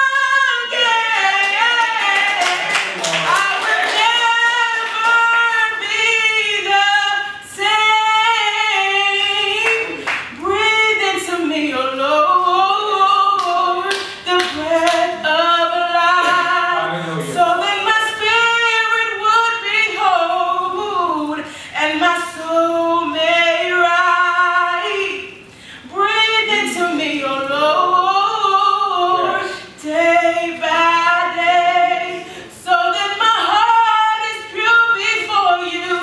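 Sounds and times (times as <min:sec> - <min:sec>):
woman singing gospel solo: 0:00.0 - 0:36.0
hand claps: 0:01.4 - 0:04.1, 0:09.6 - 0:10.3, 0:13.4 - 0:15.1.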